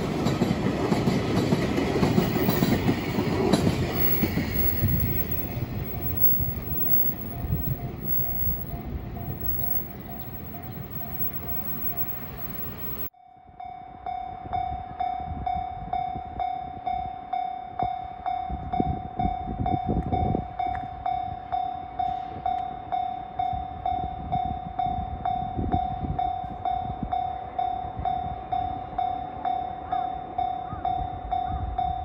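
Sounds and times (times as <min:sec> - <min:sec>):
level crossing warning bell ringing: 0:01.1 - 0:13.1
low rumbles: 0:02.1 - 0:13.1.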